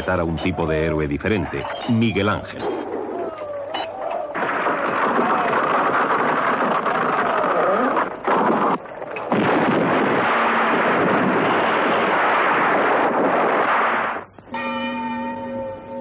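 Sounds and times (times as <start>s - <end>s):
quarry blast: 4.0s - 14.3s
rumbling roar of falling rock: 4.4s - 14.2s.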